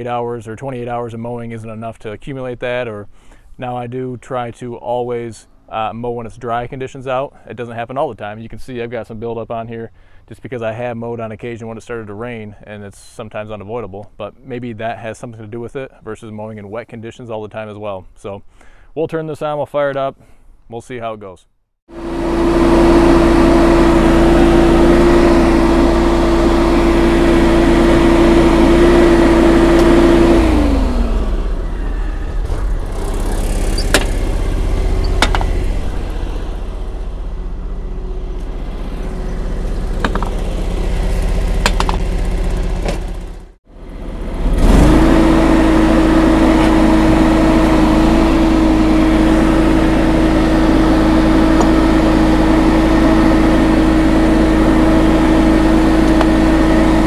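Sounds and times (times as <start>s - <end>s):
garden tractor engine running: 21.9s - 57.0s
mower deck whine: 21.9s - 57.0s.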